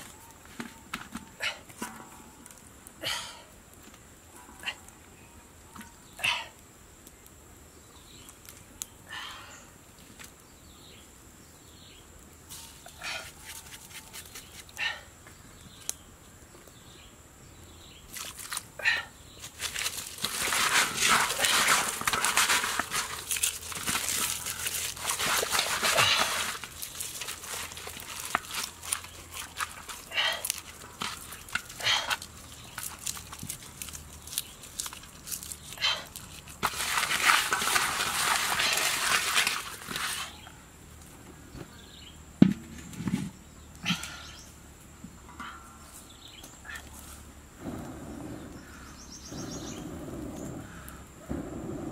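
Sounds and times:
rustling and crinkling: 12.5s - 14.8s, 19.3s - 41.8s
scrapes and clicks in metal wok: 19.6s - 40.4s.

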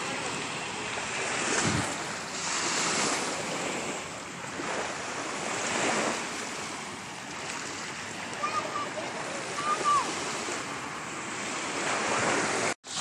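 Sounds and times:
small waves washing onto beach: 0.0s - 13.0s
wind noise on microphone: 1.2s - 8.9s.

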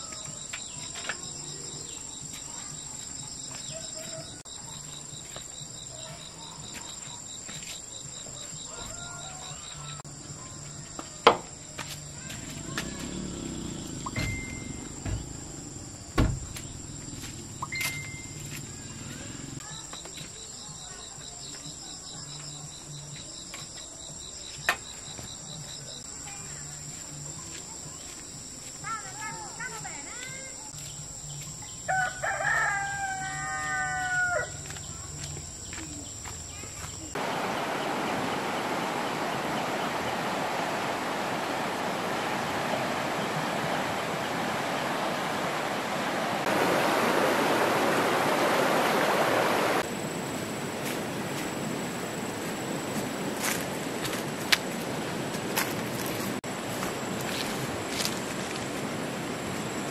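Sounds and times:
insects chirping: 0.0s - 59.9s
rooster crowing: 8.6s - 10.2s, 31.9s - 34.7s
sharp knock: 16.2s - 16.6s.

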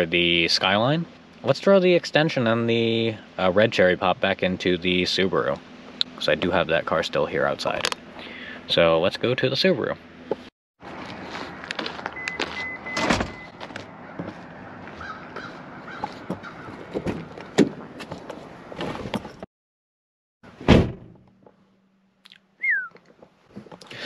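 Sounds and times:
footsteps: 10.8s - 12.8s, 13.4s - 19.3s
car door shutting thud: 12.9s - 13.5s, 20.6s - 21.2s
crow cawing: 15.0s - 16.7s.

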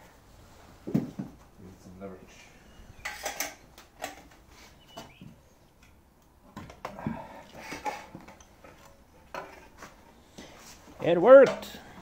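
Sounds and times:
metal clinks and knocks: 3.0s - 4.3s.

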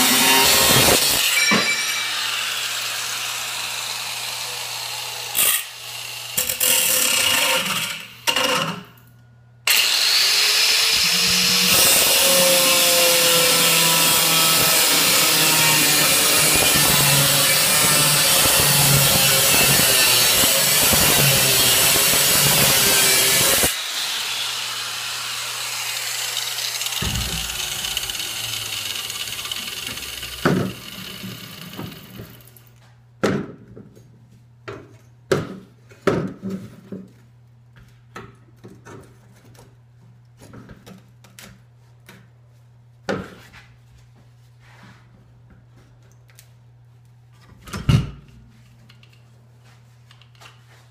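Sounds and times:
angle grinder cutting steel: 0.0s - 8.1s, 9.7s - 32.6s.

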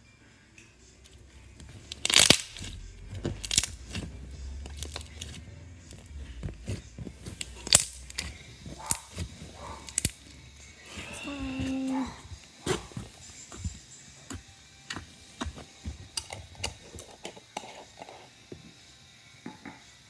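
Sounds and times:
slime popping and crackling: 1.6s - 16.8s.

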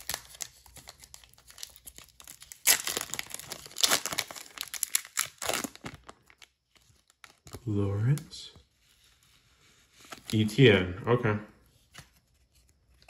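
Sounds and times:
foil wrapper crinkling and tearing: 0.0s - 7.7s.

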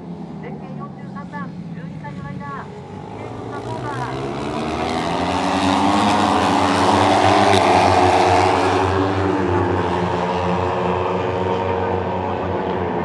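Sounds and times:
racing motorcycles passing: 0.0s - 13.0s.

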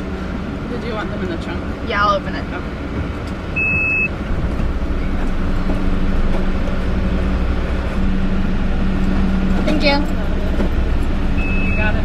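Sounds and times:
car engine and road rumble: 0.0s - 12.0s
short high beep: 3.6s - 4.1s, 11.4s - 12.0s.

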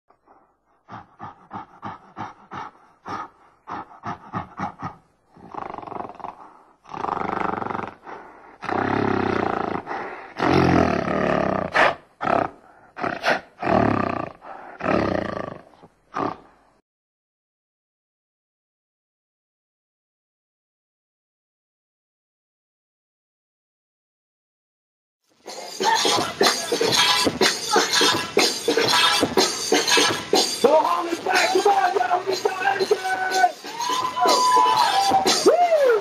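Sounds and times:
gorilla grunting: 0.9s - 16.6s
gorilla roaring: 0.9s - 16.6s.

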